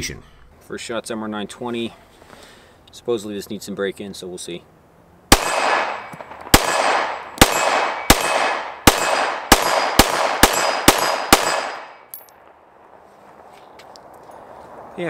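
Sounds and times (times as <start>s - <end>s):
pistol shots with echo: 5.3s - 12.2s.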